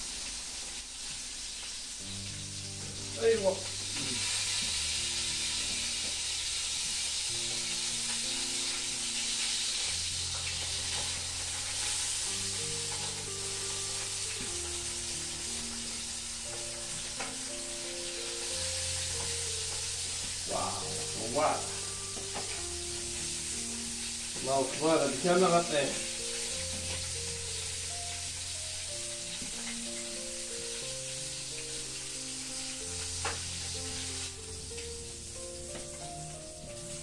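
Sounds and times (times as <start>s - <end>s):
food sizzling in hot oil: 0.0s - 37.0s.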